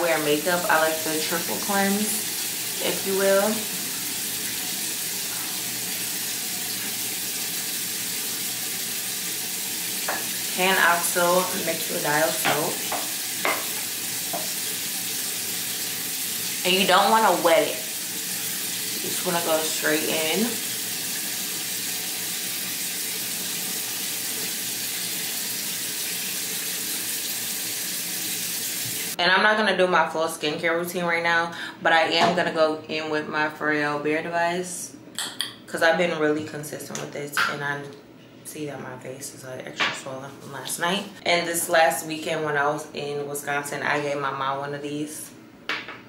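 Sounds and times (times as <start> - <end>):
tap running: 9.4 - 14.8, 28.7 - 29.2
tap running into sink: 10.0 - 10.5, 12.3 - 14.6.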